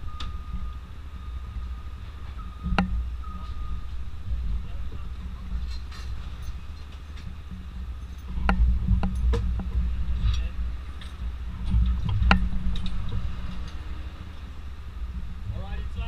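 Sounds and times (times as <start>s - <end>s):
engine idling: 0.0s - 16.0s
metallic knocks and clanks: 2.0s - 14.1s.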